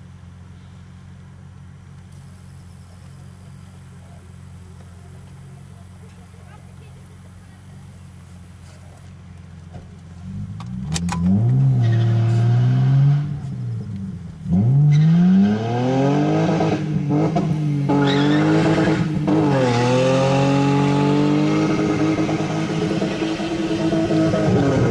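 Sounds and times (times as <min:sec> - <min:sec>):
car engine revving hard: 0:10.2 - 0:24.9
tyres squealing on asphalt: 0:11.4 - 0:13.0, 0:14.7 - 0:15.6, 0:17.9 - 0:20.0.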